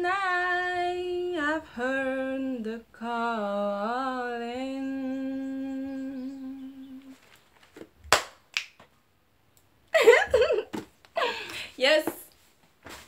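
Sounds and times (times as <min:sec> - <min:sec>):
woman singing unaccompanied: 0:00.0 - 0:07.2.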